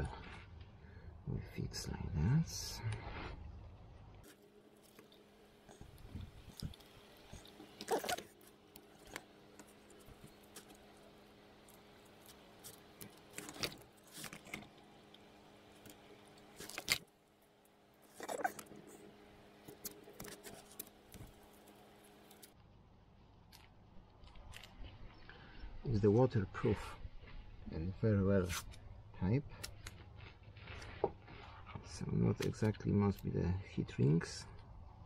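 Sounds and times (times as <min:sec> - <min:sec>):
faint steady hum: 0:00.0 - 0:35.0
wires rustling and clicking: 0:04.1 - 0:22.6, 0:29.5 - 0:33.3.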